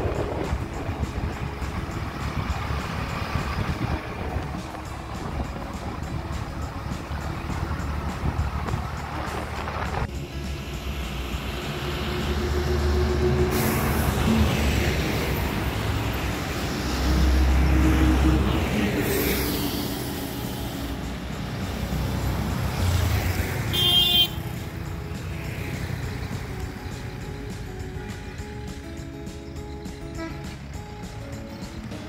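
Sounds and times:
vehicle engines rumbling past: 0.0s - 32.0s
short horn toot: 23.7s - 24.4s.

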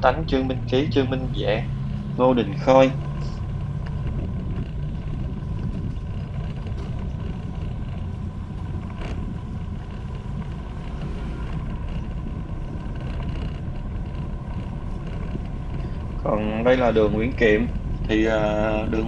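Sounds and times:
motorbike engine rumble: 0.0s - 19.0s
street traffic: 0.0s - 19.0s
wind buffeting microphone: 0.0s - 19.0s.

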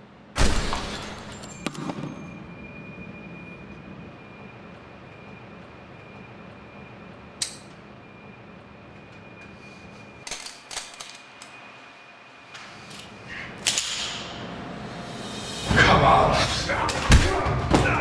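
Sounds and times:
steady low hum: 11.2s - 18.0s.

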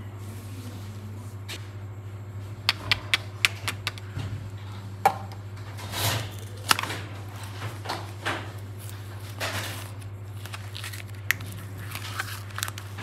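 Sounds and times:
steady low hum: 0.0s - 13.0s
plastic rustling: 6.3s - 13.0s.

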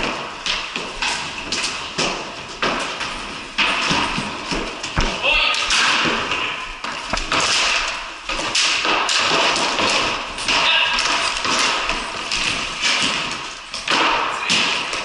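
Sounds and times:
hockey sticks clacking on concrete: 0.0s - 15.0s
ball knocking off boards: 3.6s - 15.0s.

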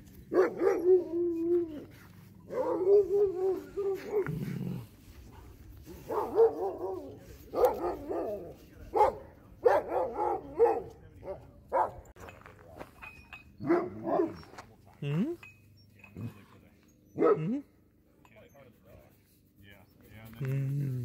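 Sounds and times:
dogs whining and barking: 0.1s - 4.8s.

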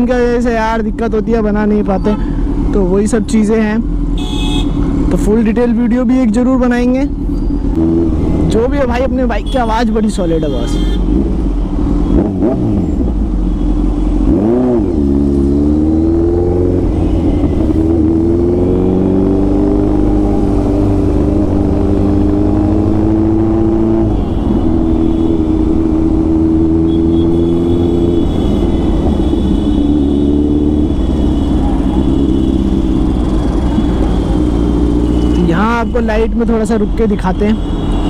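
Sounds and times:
motorcycle engine revving: 7.1s - 9.0s, 10.8s - 35.8s.

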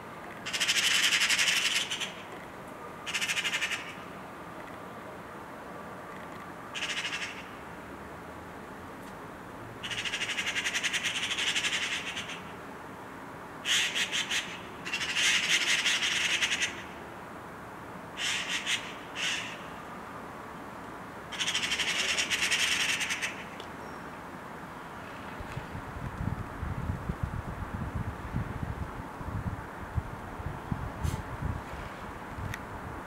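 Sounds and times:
magpies rattling chatter: 18.2s - 19.6s, 21.3s - 23.5s.

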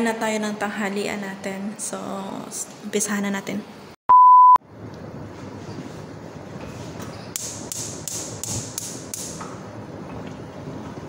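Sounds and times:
loud beep tone: 4.1s - 4.6s
gas burner hissing: 7.3s - 10.6s
sharp high ticks: 7.4s - 9.4s.

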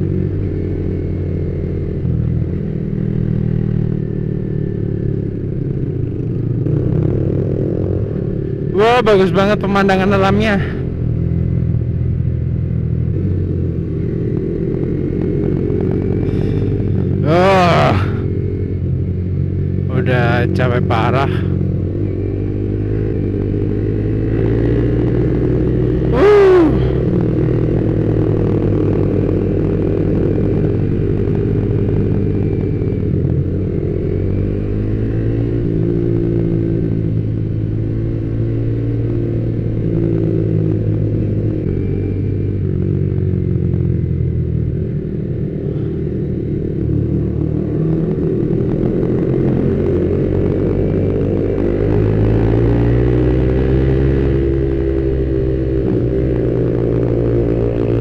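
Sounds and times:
motorcycle engine running: 0.0s - 58.0s
loud falling tone: 26.1s - 27.0s.

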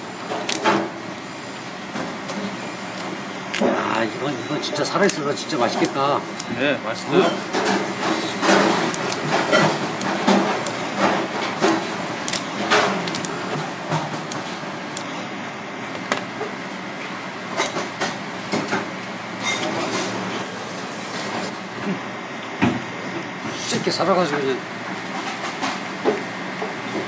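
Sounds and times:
steady background noise: 0.0s - 27.0s
meat being pried and cut: 12.3s - 13.3s.

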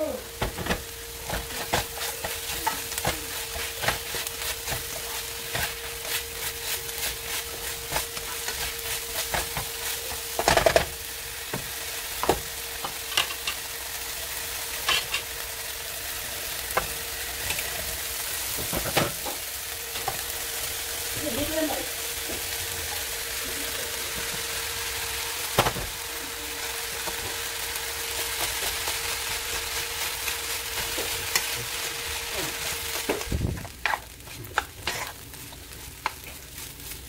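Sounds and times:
vegetables sizzling in a skillet: 0.0s - 37.0s
spatula scraping a pan: 1.2s - 10.9s, 28.0s - 37.0s
fork scraping a pot: 33.8s - 35.2s.

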